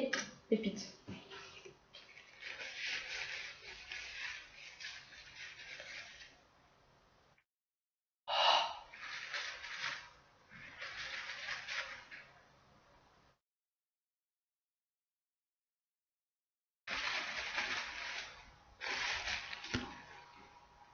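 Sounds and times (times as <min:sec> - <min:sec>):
paper tissue rustling: 0:01.2 - 0:06.5, 0:08.9 - 0:12.4, 0:16.9 - 0:20.9
tissue crinkle: 0:01.3 - 0:06.4, 0:08.9 - 0:12.4, 0:16.9 - 0:20.6.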